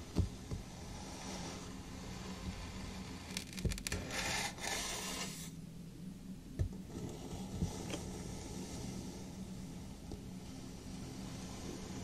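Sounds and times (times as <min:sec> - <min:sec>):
sand grainy scraping: 0:04.0 - 0:05.6, 0:10.4 - 0:12.0.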